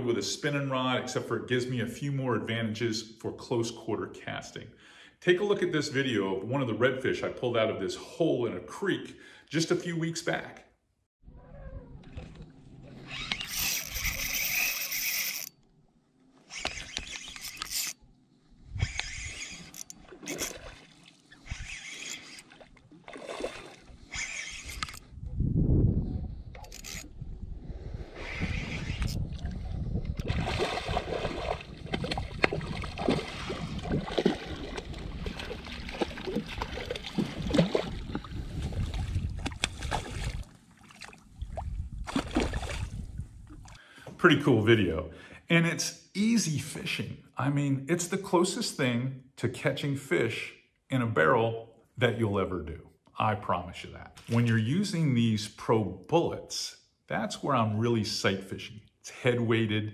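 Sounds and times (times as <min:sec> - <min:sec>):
fishing reel and line noise: 0:12.8 - 0:15.6, 0:16.4 - 0:18.0, 0:18.6 - 0:25.1, 0:26.5 - 0:27.2, 0:28.0 - 0:29.3
fish splashing at water surface: 0:19.1 - 0:24.6, 0:30.2 - 0:43.0.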